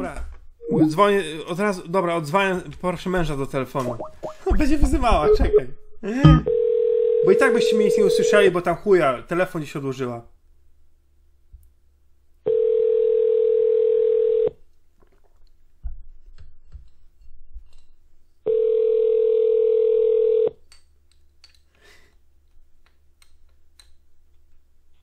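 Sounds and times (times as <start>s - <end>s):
telephone ringback tone: 6.3s - 8.4s, 12.5s - 14.5s, 18.5s - 20.5s.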